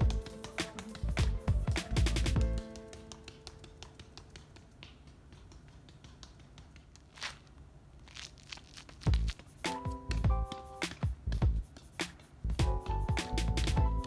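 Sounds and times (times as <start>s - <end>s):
footfalls on concrete steps: 10.1s - 11.7s.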